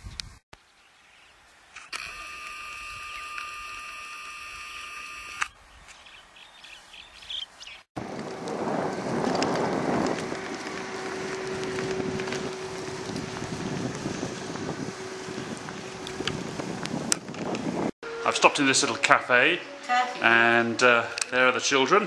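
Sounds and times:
wind on microphone: 0:00.0 - 0:00.4, 0:08.0 - 0:18.0.

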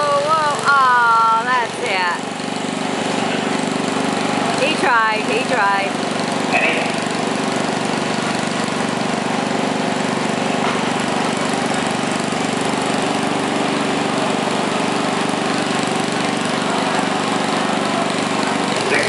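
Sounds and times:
tractor engine running steadily: 0:00.0 - 0:19.0.

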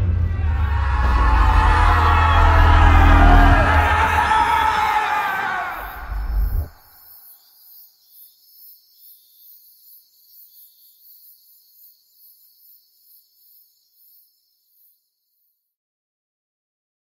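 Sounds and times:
crickets chirping faintly: 0:04.6 - 0:15.7.

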